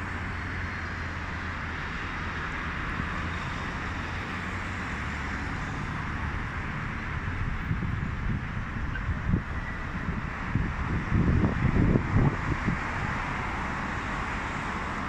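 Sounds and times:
traffic-like hiss: 0:00.0 - 0:15.0.

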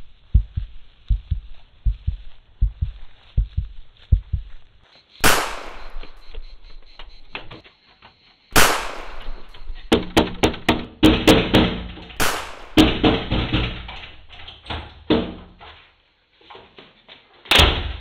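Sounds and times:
door banging: 0:09.3 - 0:14.5.

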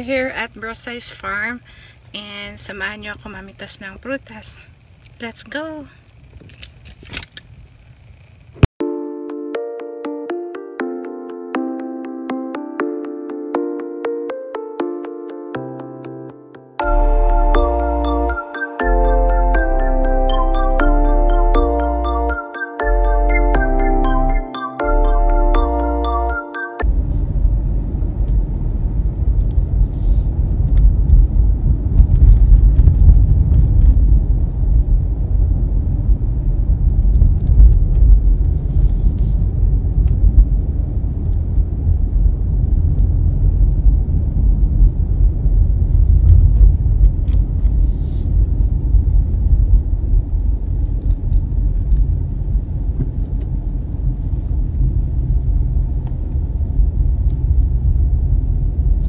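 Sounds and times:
car engine and tyre rumble: 0:26.9 - 0:59.0.

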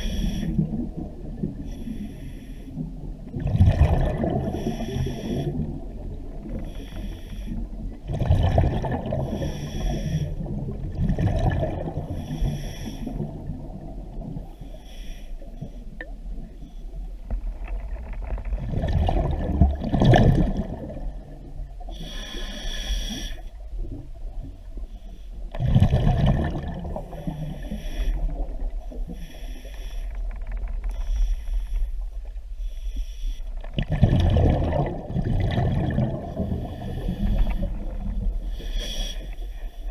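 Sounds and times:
exhaled bubbles rushing: 0:03.3 - 0:04.8, 0:08.0 - 0:09.5, 0:10.4 - 0:12.2, 0:18.4 - 0:21.6, 0:25.5 - 0:27.4, 0:33.6 - 0:38.4
regulator hissing inhalations: 0:22.0 - 0:23.5, 0:38.6 - 0:39.9.

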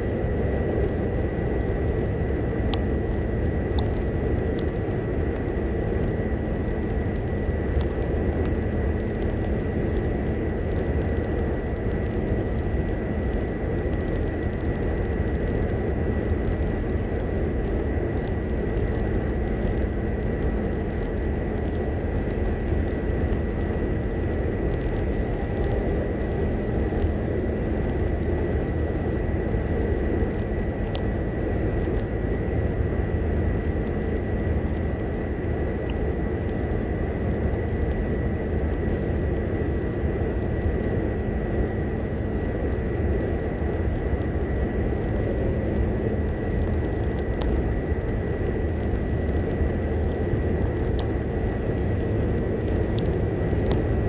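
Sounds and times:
high-pitched whine: 0:00.0 - 0:54.0
road and engine noise in car: 0:00.0 - 0:54.0.

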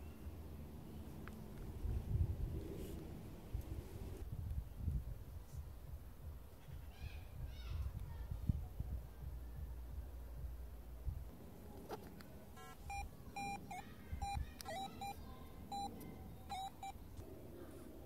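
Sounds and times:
metal detector app beeps: 0:12.6 - 0:17.0.

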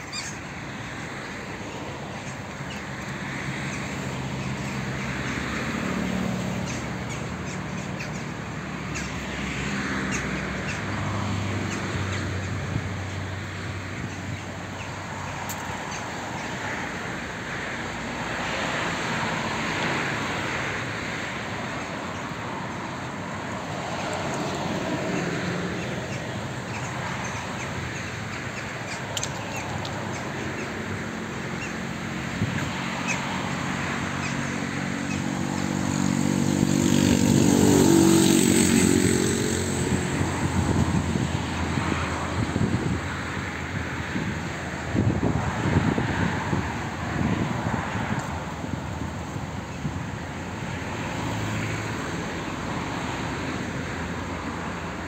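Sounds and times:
outdoor wash of noise: 0:00.0 - 0:55.0.

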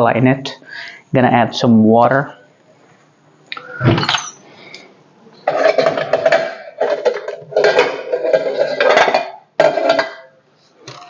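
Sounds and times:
metal kitchenware clattering: 0:03.9 - 0:04.5, 0:05.4 - 0:11.0.

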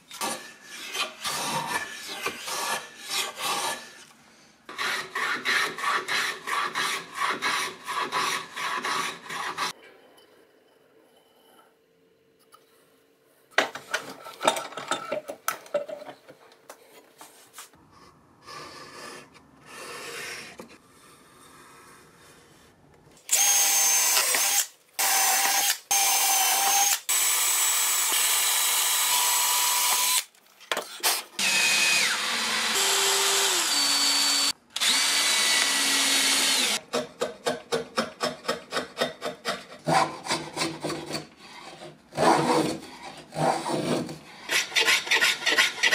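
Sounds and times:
power drill whining: 0:23.3 - 0:30.3, 0:31.4 - 0:36.8.

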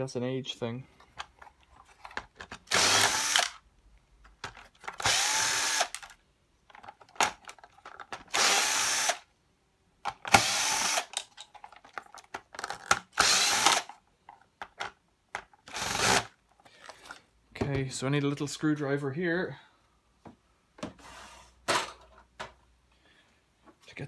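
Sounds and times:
cordless drill whining: 0:02.7 - 0:03.6, 0:05.0 - 0:06.0, 0:08.3 - 0:09.2, 0:10.3 - 0:11.1, 0:13.2 - 0:13.9, 0:15.7 - 0:16.3.

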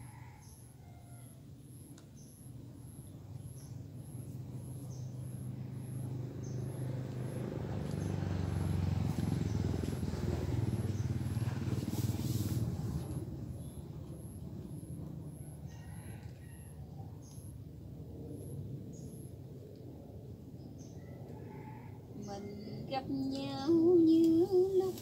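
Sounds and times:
motor engine passing: 0:02.8 - 0:15.7.

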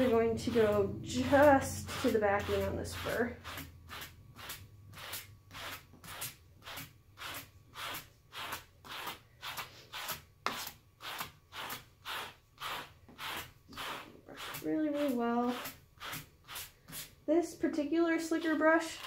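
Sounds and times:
brush rasping through faux fur: 0:00.0 - 0:17.2.

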